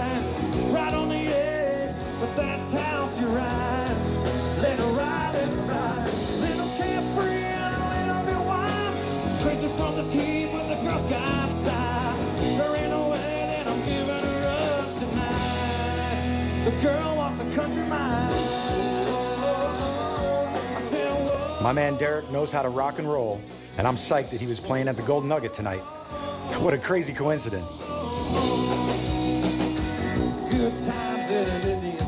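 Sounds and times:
country rock band playing: 0.0s - 32.0s.

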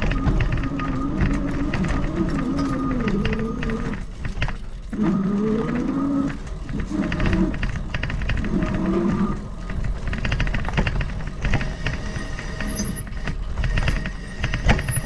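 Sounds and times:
pitched drone: 0.0s - 4.3s
bike rattling on dirt trail: 0.0s - 15.0s.

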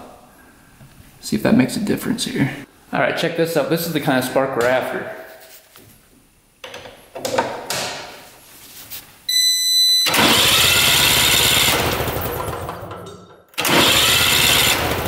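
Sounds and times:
engine turning over: 10.0s - 15.0s.

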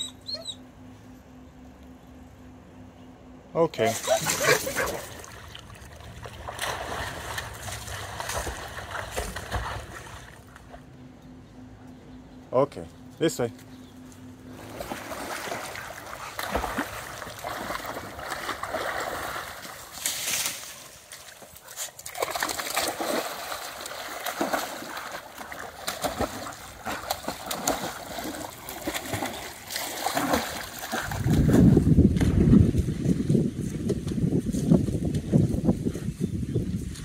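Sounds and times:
dogs splashing in water: 3.8s - 10.8s, 14.5s - 32.8s.

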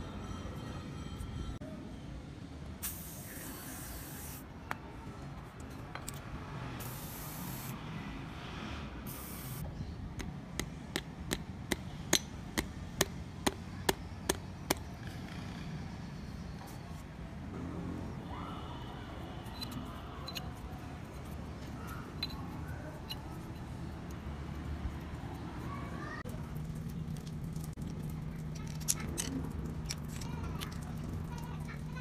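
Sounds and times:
aerosol spray hissing: 2.8s - 4.4s, 6.8s - 7.8s, 9.1s - 9.6s.

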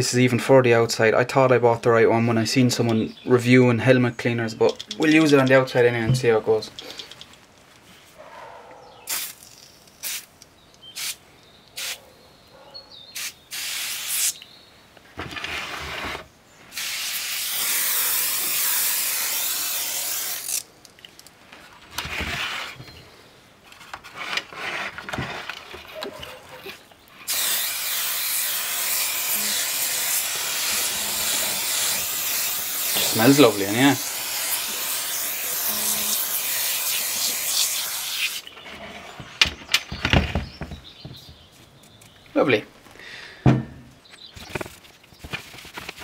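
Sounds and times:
aerosol can spraying: 9.1s - 9.4s, 10.0s - 10.3s, 11.0s - 11.2s, 11.8s - 12.0s, 13.2s - 14.4s, 16.8s - 20.6s, 27.3s - 38.4s.

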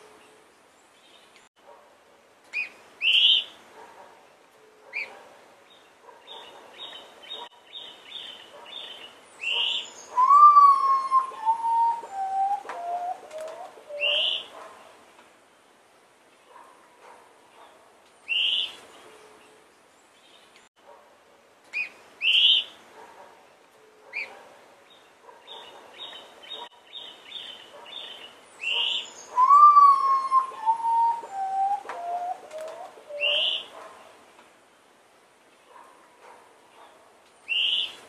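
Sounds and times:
birds chirping: 2.5s - 15.0s, 23.6s - 34.2s
bird mournful whistling song: 9.4s - 14.5s, 28.6s - 33.7s.

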